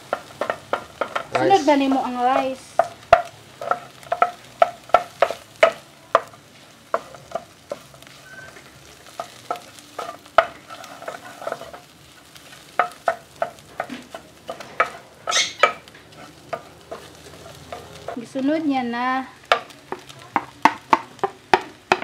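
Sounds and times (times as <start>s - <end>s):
faint sizzle of frying: 0.0s - 22.0s
spatula scraping and knocking pan: 0.0s - 22.0s.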